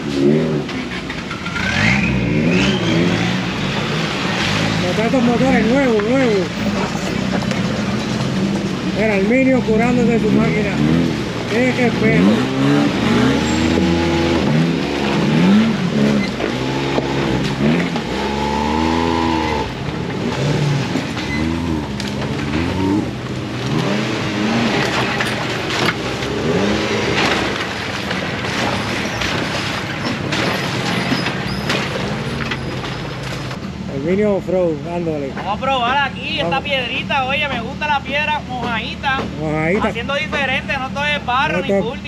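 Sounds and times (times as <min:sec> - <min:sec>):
knocks and clatter: 0:00.0 - 0:33.8
off-road vehicle engines revving: 0:00.0 - 0:42.0.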